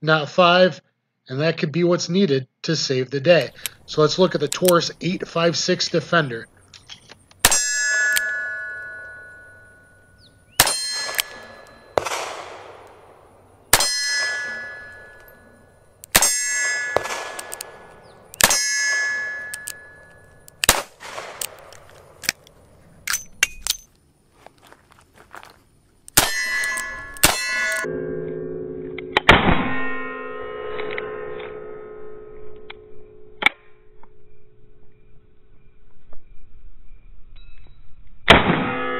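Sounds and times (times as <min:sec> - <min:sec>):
metallic ringing of steel target: 0:07.4 - 0:21.4, 0:26.2 - 0:28.0
revolver shots: 0:10.5 - 0:22.2.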